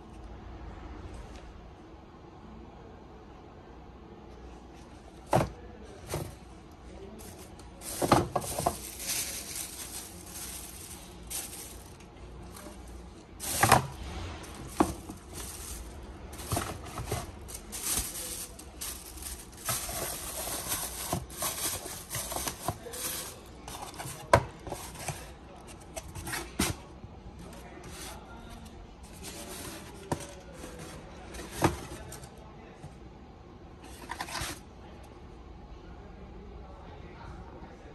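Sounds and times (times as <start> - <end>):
tissue paper rustling: 7.0 - 25.2.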